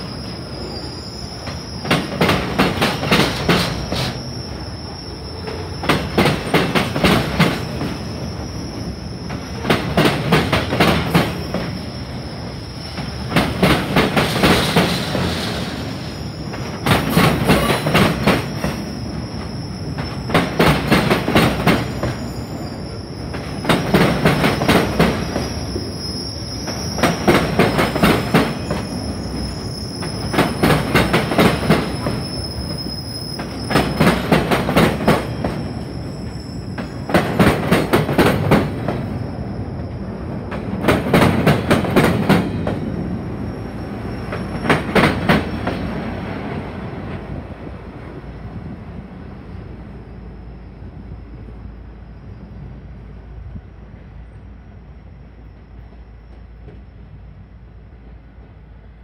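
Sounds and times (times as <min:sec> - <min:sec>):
high wheel squeal: 0:00.0 - 0:37.7, 0:38.8 - 0:41.8, 0:42.4 - 0:46.5.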